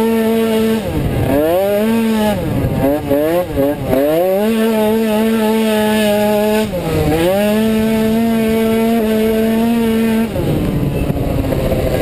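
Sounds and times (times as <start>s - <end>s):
scooter engine at high revs: 0.0s - 12.0s.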